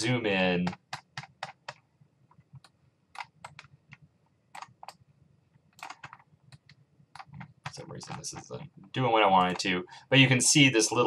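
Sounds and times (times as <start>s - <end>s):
computer mouse clicking: 0.6s - 5.0s, 5.7s - 8.7s.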